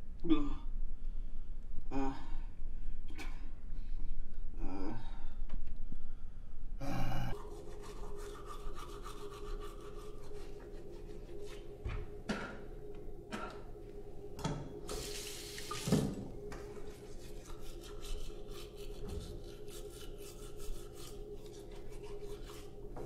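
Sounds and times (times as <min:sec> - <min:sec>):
toothbrush scrubbing teeth: 0:07.3 - 0:11.7, 0:16.8 - 0:23.0
tap running into sink: 0:15.6 - 0:16.3.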